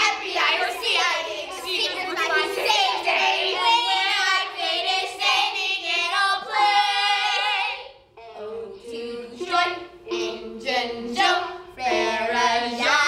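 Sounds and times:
girls singing together: 0.0s - 13.0s
lower voices singing: 0.0s - 13.0s.

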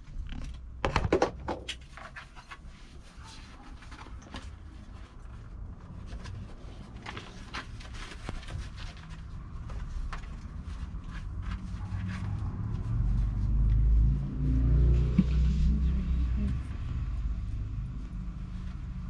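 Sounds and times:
low rumble: 11.3s - 19.0s.

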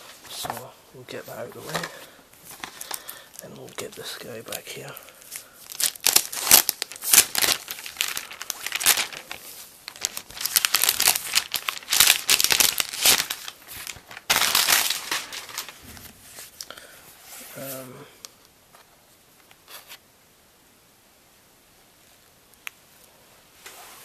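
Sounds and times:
plastic sleeve crinkling: 0.0s - 16.7s.

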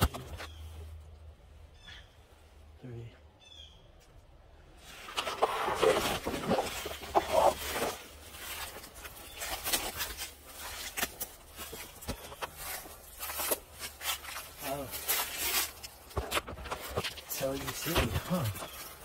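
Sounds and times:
crackles and clicks in undergrowth: 4.0s - 19.0s
leafy ground cover rustling: 4.8s - 19.0s.

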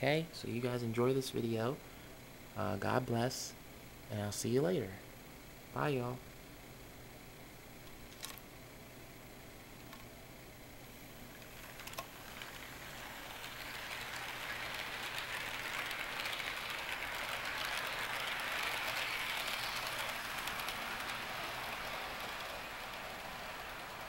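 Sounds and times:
model train cars clattering: 11.4s - 24.0s.

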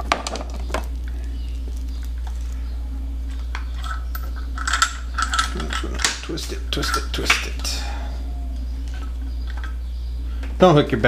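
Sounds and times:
low steady hum: 0.0s - 11.0s
metal fittings clicking and rattling: 3.8s - 7.4s.

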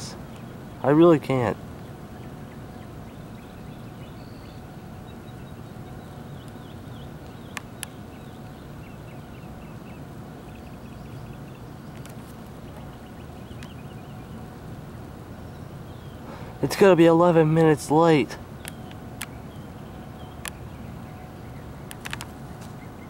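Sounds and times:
low outdoor rumble: 0.0s - 23.0s
small birds chirping: 0.0s - 23.0s
sharp clicks: 21.9s - 22.3s.

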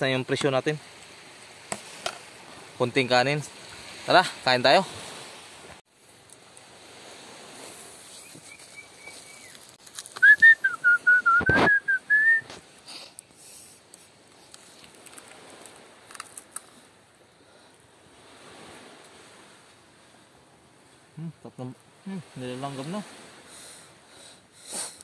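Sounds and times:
fainter higher whistle: 10.2s - 12.5s
whistled notes: 10.2s - 12.5s.

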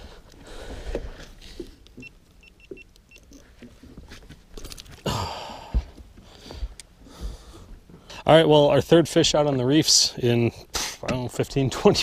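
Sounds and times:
faint high beeps: 2.0s - 3.3s.

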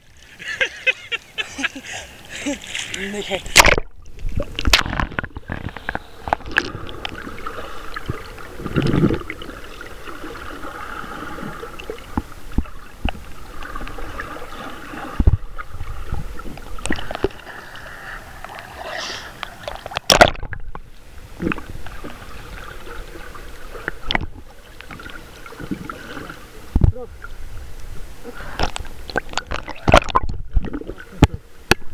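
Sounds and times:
underwater clicks and gurgling: 2.0s - 31.9s
muffled underwater hiss: 4.3s - 20.0s, 20.9s - 29.9s.

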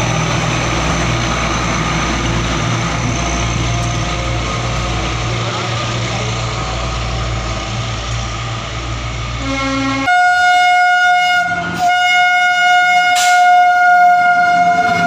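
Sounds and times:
diesel train engine drone: 0.0s - 15.0s
locomotive horn blast: 9.4s - 15.0s.

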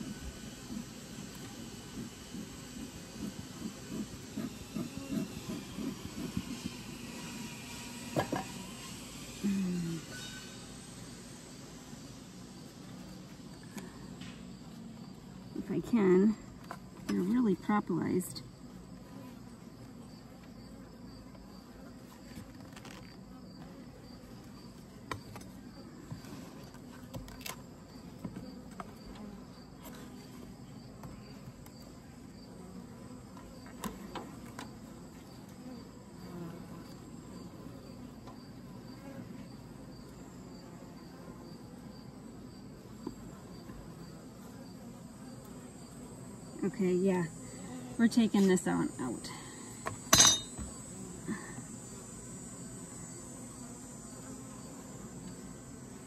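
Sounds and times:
bees humming: 0.0s - 56.0s
faint insect chirp: 0.0s - 56.0s
hive tool cracking wooden frames: 25.0s - 27.6s.

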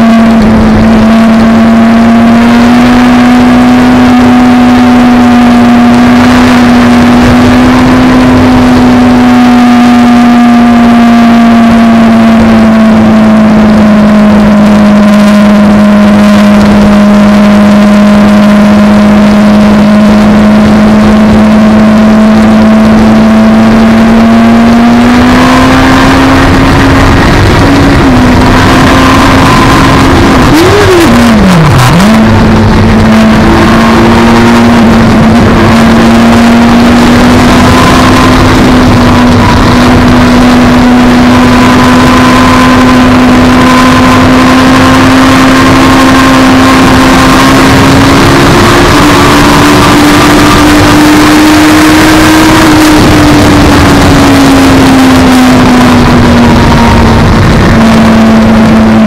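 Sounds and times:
wind rush: 0.0s - 3.0s, 19.4s - 59.0s
motorcycle engine running hard: 0.0s - 59.0s.

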